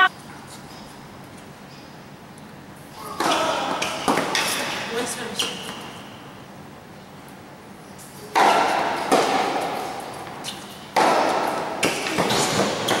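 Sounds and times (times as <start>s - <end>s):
tennis ball hit by racquet: 3.0s - 4.8s, 8.3s - 13.0s.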